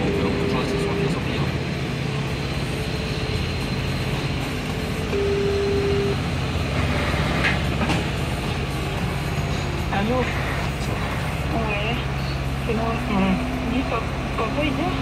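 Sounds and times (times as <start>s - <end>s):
diesel truck engine drone: 0.0s - 15.0s
steady single tone: 5.1s - 6.2s.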